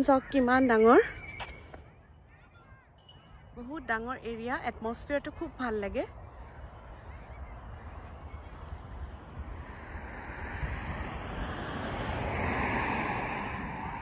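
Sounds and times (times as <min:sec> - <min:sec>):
wind rumble on microphone: 0:00.0 - 0:14.0
vehicle passing: 0:06.0 - 0:14.0.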